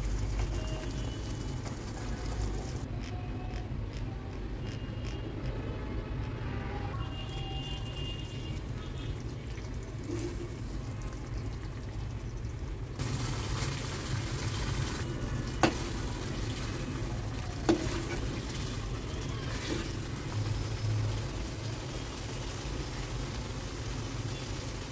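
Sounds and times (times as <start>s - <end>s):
ladle stirring thick gravy: 13.9s - 21.4s.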